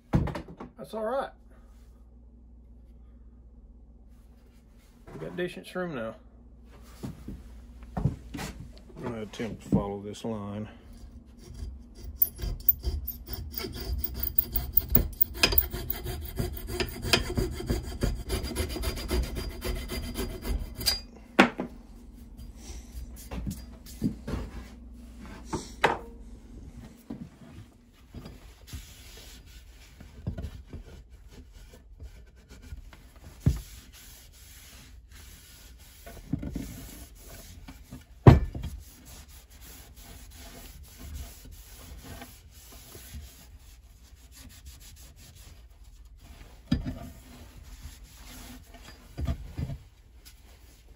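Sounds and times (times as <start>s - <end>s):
hacksaw cutting wood: 12.2s - 20.8s.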